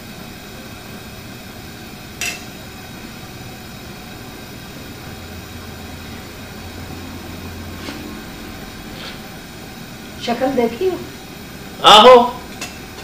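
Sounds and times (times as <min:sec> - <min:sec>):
utensil clinking on steel plate: 0:02.2 - 0:02.5.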